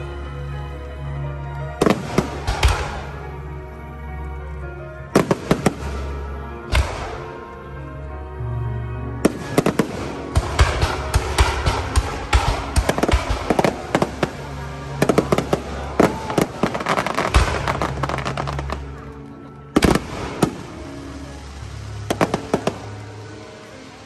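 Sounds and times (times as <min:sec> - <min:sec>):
fireworks bangs: 0:01.8 - 0:03.2, 0:05.1 - 0:07.4, 0:09.2 - 0:19.0, 0:19.8 - 0:21.4, 0:22.0 - 0:23.5
fireworks bursting and crackling: 0:01.8 - 0:03.4, 0:05.0 - 0:07.6, 0:09.2 - 0:24.0.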